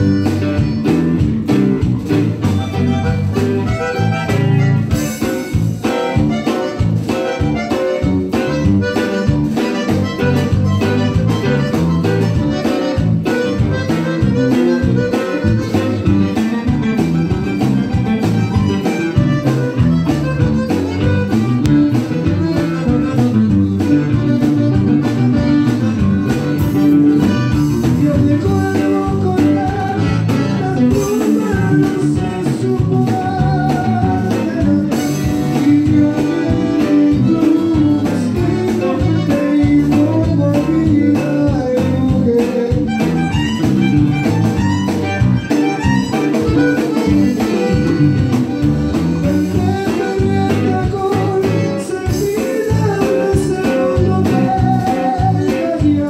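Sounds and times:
button accordion: 0.0 - 56.0
drum kit: 0.0 - 56.0
electric bass: 0.0 - 56.0
electric guitar: 0.0 - 56.0.

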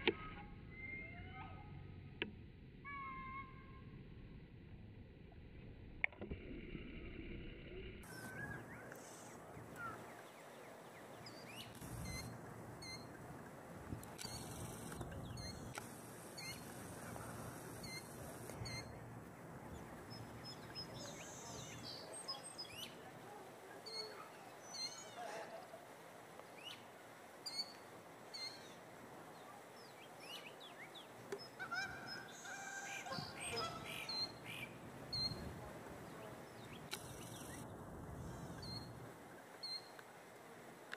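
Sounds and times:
bird chirps and whistles: 0.7 - 1.4
low honking bird call: 31.4 - 35.4.

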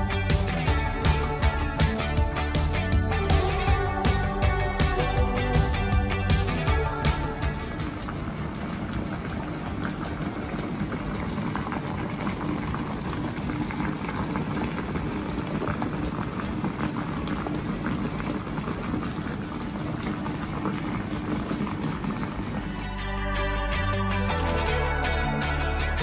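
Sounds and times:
broth boiling and bubbling: 7.4 - 22.9.

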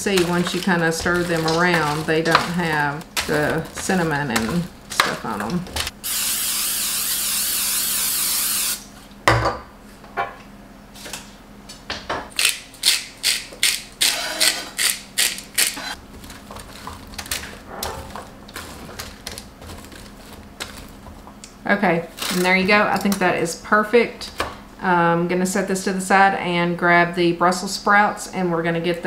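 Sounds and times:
aerosol cooking spray hissing: 6.0 - 8.8.

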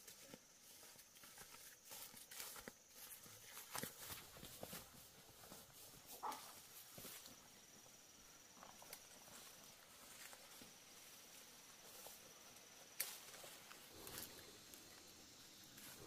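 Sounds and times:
insect trilling: 5.8 - 16.0.

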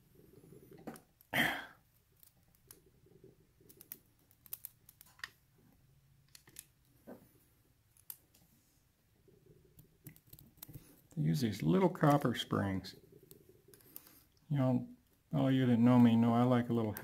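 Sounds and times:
small metallic clicks and taps: 3.7 - 5.4, 7.9 - 8.5.

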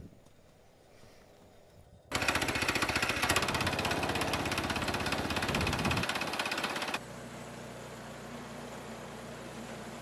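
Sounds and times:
small petrol engine running: 2.1 - 10.0.

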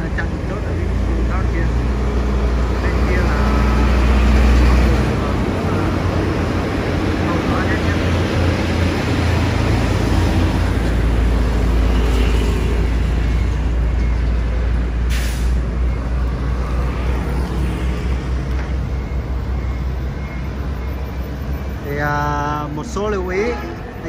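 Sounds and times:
bus rumbling past: 0.0 - 24.0
short hiss: 15.1 - 15.6.

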